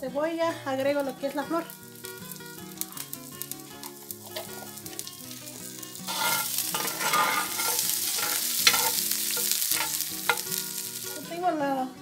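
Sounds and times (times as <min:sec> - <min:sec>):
onion sizzling in hot fat: 0:00.4 - 0:11.8
metal spoon stirring onions: 0:02.7 - 0:11.2.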